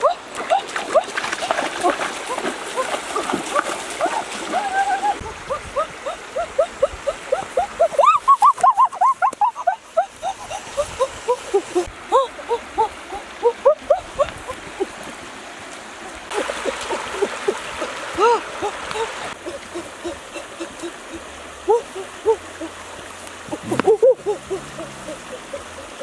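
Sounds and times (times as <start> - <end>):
faint flowing water: 0.0 - 26.0
chorus of animal calls: 23.5 - 26.0.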